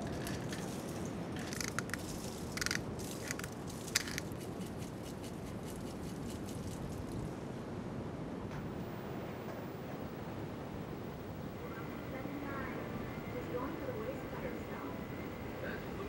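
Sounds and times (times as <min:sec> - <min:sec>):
seasoning shaker shaking: 0:02.0 - 0:07.1.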